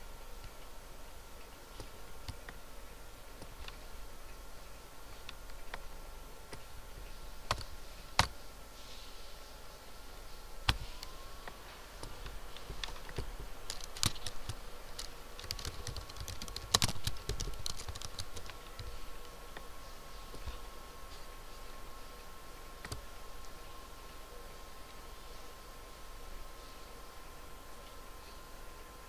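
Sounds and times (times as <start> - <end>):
typing on computer keyboard: 7.5 - 8.3, 12.0 - 19.0.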